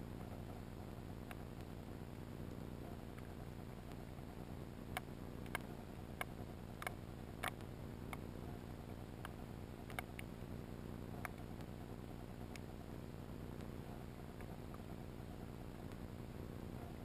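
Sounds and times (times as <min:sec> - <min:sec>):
sharp clicks: 0:04.9 - 0:08.3, 0:09.2 - 0:10.3, 0:11.1 - 0:11.7.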